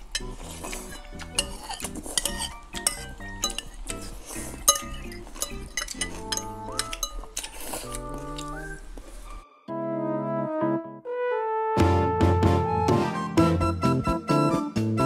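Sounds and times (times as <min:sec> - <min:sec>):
cutlery clinking on ceramic bowls: 0:00.0 - 0:08.6
background music: 0:00.0 - 0:15.0.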